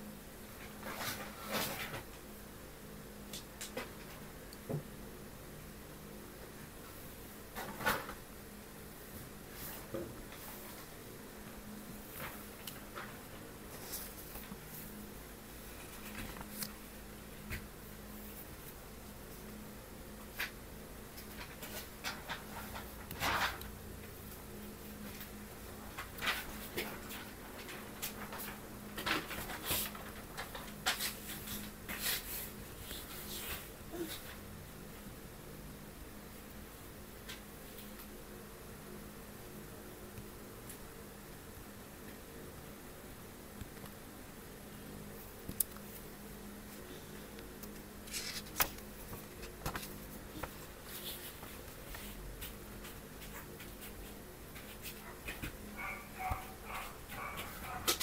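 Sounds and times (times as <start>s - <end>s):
faint steady hum: 0.0s - 58.0s
paper rustling: 25.0s - 34.4s, 48.0s - 54.0s
book page turning: 48.1s - 52.0s.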